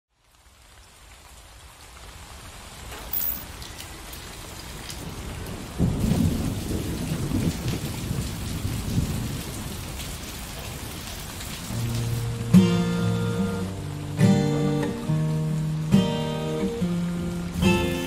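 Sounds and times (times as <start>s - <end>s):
steady rain falling: 0.1s - 18.0s
low rumble of thunder: 4.9s - 11.4s
acoustic guitar: 11.7s - 18.0s.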